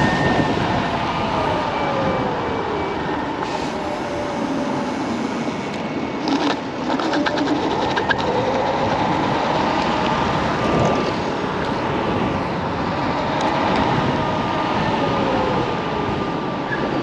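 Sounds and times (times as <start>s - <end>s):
road noise: 0.0s - 17.0s
wind rushing over microphone: 0.0s - 17.0s.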